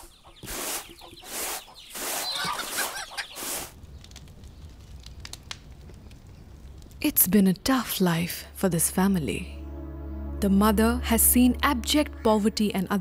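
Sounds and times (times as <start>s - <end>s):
chickens clucking: 0.0s - 3.6s
low hum: 8.0s - 13.0s.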